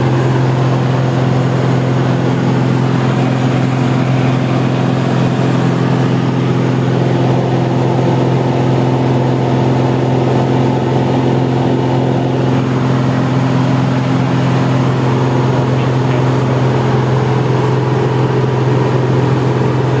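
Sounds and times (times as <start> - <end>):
aircraft engine and propeller droning: 0.0 - 20.0.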